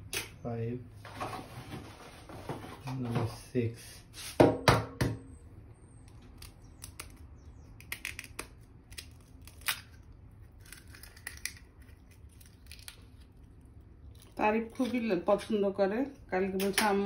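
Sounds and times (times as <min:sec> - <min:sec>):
eggshell cracking by hand: 0:06.0 - 0:15.0.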